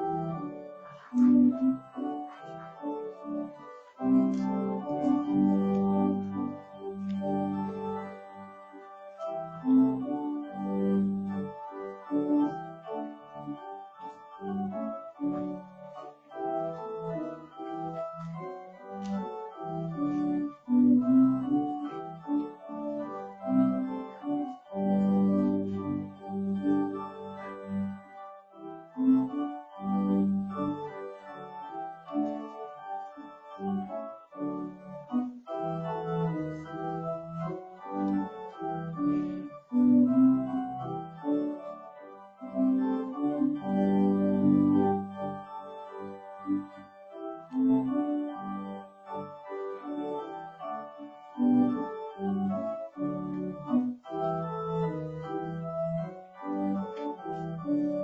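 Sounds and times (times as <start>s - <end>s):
organ playing held chords: 0.0s - 58.0s.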